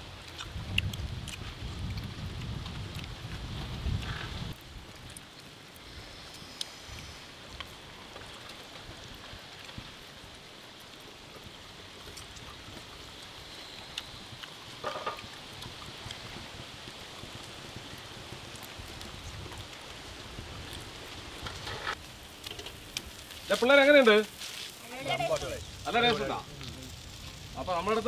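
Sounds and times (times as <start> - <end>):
steady high hiss: 4.1 - 28.0
small clicks and rustles: 6.4 - 25.6.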